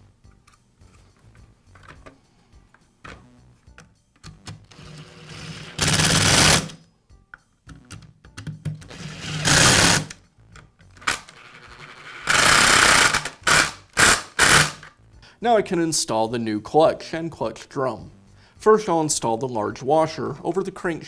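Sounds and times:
cordless drill driving screws: 4.7s - 6.7s, 8.9s - 10.1s, 12.3s - 14.8s.

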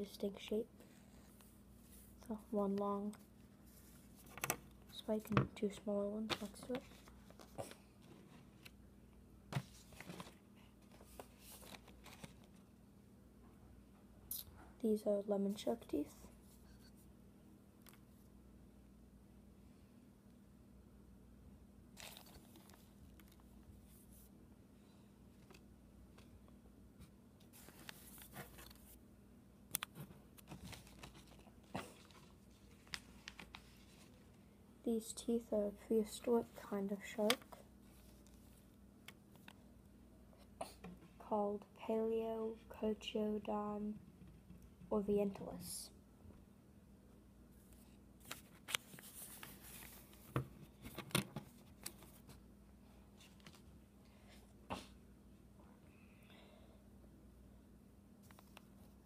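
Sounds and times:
paper rustling: 9.6s - 12.6s, 22.0s - 24.0s, 27.5s - 29.0s, 30.4s - 34.3s, 48.2s - 52.4s.

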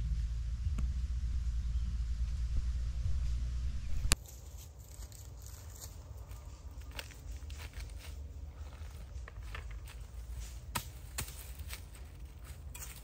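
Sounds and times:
low wind rumble: 0.0s - 4.2s
dry leaves crunching and scraping: 4.2s - 13.0s.

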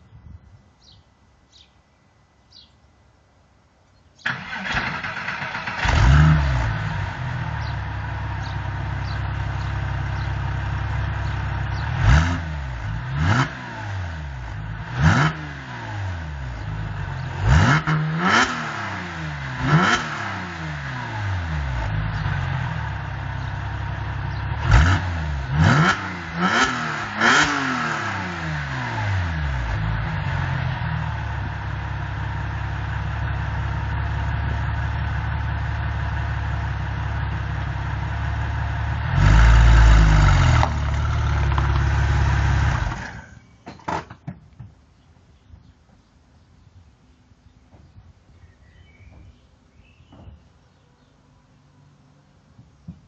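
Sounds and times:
car engine revving and idling: 4.3s - 43.4s.

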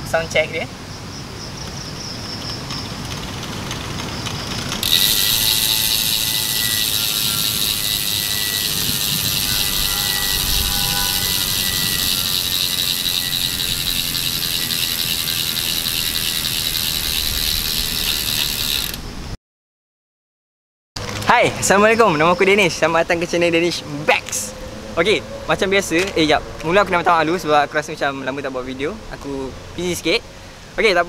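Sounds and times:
bike freehub ratchet buzzing: 4.5s - 19.1s.

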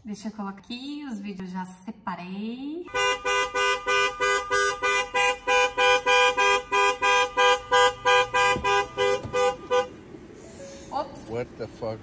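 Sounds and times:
car horn honking two-note blasts: 2.9s - 10.0s.

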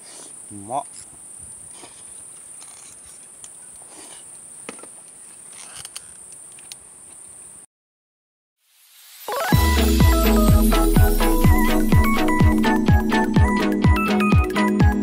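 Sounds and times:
night insects chorus: 0.0s - 7.6s.

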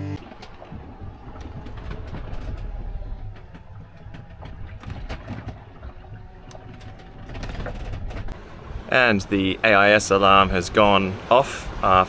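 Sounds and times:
boat creaks and knocks: 0.2s - 8.4s
hull moving through water: 0.2s - 12.0s.

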